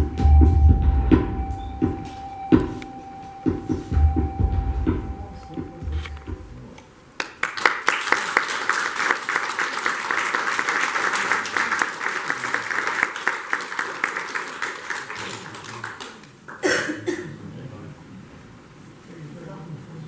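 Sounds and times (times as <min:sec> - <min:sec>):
audience applauding: 0:07.2 - 0:16.6.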